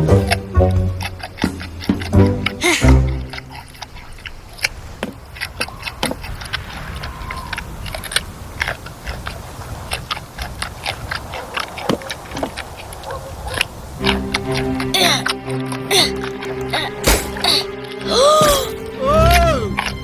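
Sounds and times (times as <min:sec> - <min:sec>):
panda crunching a carrot: 0:00.0 - 0:20.0.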